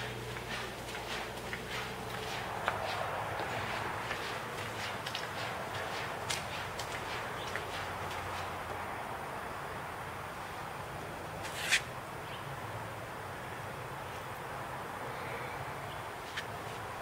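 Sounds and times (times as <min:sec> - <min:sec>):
low hum: 0:00.0 - 0:08.7
outdoor hiss: 0:00.0 - 0:17.0.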